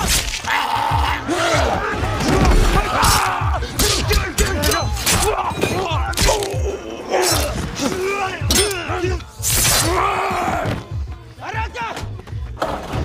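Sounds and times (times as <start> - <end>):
men groaning in pain: 0.4 - 9.2.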